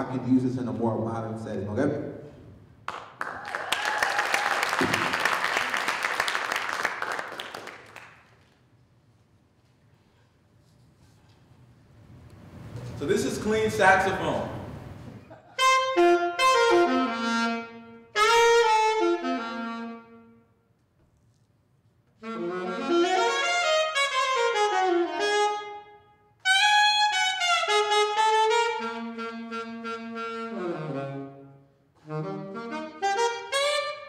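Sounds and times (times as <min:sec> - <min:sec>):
saxophone playing: 0:15.4 - 0:20.7, 0:22.2 - 0:34.0.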